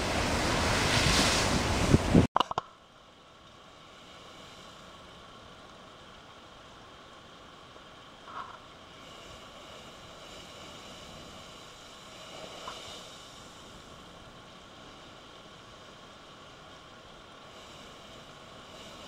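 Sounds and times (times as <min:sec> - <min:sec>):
surf rushing into blowhole: 0:00.0 - 0:02.3, 0:08.3 - 0:19.0.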